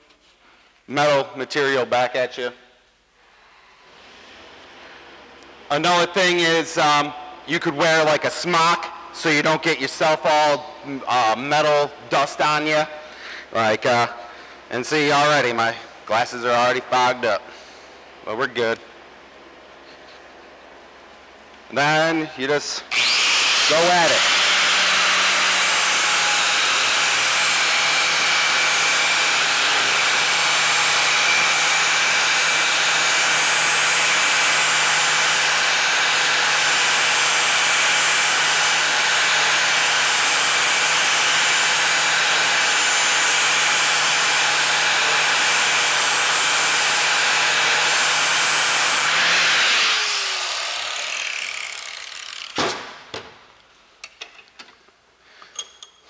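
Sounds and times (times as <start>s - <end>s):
angle grinder grinding steel: 22.9s - 52.6s
grinder winding down: 22.9s - 52.6s.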